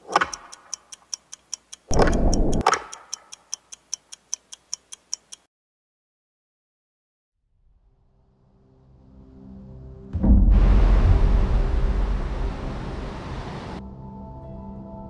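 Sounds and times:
even ticking: 0.0s - 5.5s
heavy low hit: 10.2s - 13.0s.

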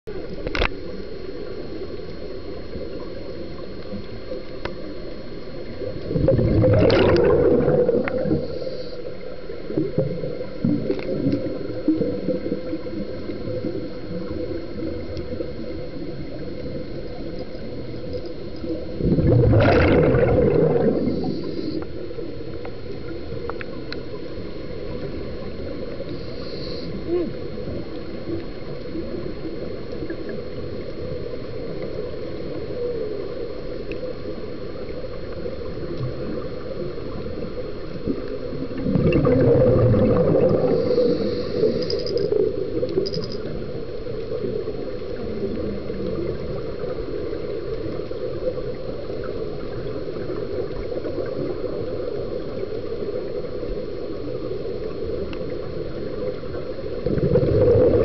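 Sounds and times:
faint high whine: 0.1s - 58.0s
underwater low wash: 0.1s - 58.0s
bubbling: 5.8s - 8.9s, 18.6s - 21.9s, 35.8s - 48.0s, 56.6s - 58.0s.

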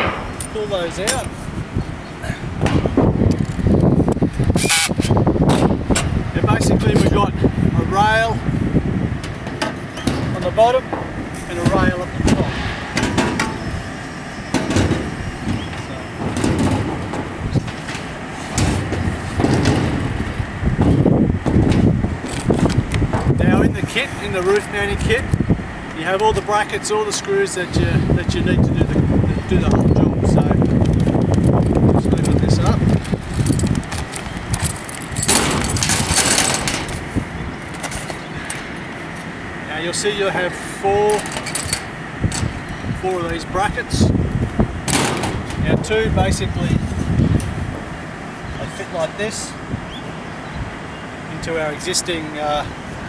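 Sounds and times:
steady low rumble: 0.0s - 53.0s
metal parts clattering on metal roof: 9.2s - 13.9s, 14.5s - 23.6s, 29.9s - 38.8s, 41.1s - 42.6s, 44.8s - 46.5s
metal rails knocking on roof sheeting: 14.5s - 20.2s.

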